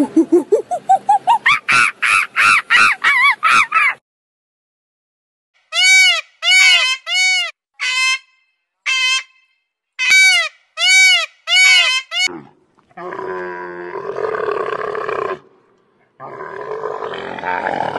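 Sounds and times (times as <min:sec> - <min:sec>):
peacock calling: 0:05.7 - 0:08.3, 0:08.9 - 0:09.4, 0:10.0 - 0:12.3
camel groaning: 0:16.2 - 0:17.9.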